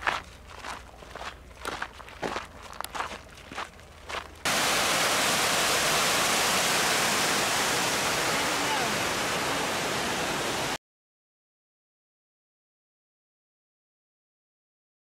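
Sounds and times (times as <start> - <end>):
footsteps on dirt trail: 0.0 - 4.5
rushing creek water: 4.4 - 10.8.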